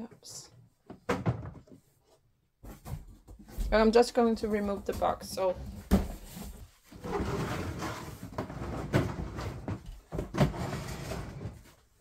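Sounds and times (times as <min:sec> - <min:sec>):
cardboard box scraping and rustling: 0:06.0 - 0:11.8.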